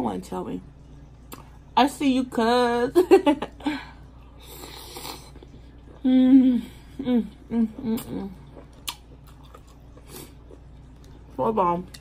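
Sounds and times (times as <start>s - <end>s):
woman humming while chewing: 4.9s - 8.7s.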